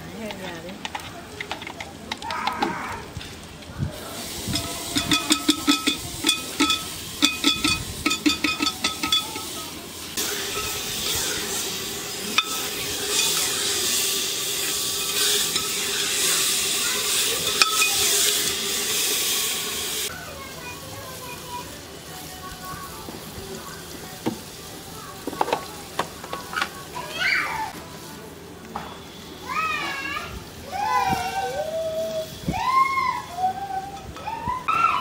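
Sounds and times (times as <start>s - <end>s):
cooking pot sizzling: 0.0s - 35.0s
metal ladle clinking on pot: 4.5s - 9.5s.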